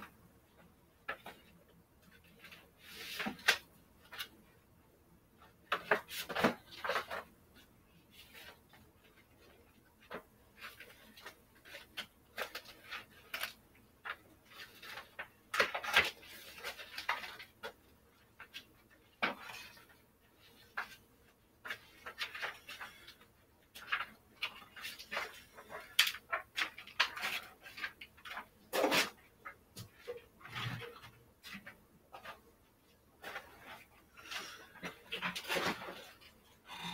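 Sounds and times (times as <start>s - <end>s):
items clattering on wooden shelf: 18.4s - 19.9s, 23.8s - 32.5s, 33.2s - 36.4s
knocks and scrapes: 28.4s - 32.5s.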